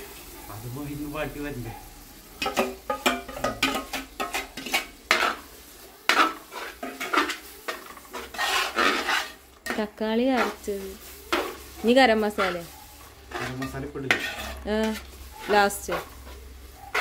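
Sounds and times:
metal spoon scraping a pot: 2.4 - 5.5, 6.1 - 10.7, 11.3 - 17.0.

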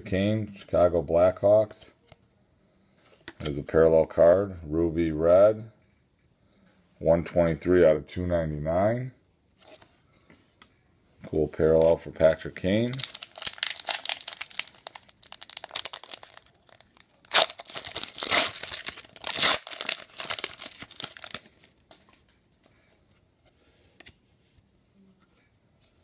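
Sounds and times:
foil wrapper crinkling: 12.8 - 21.6
foil wrapper ripping: 12.9 - 21.4.

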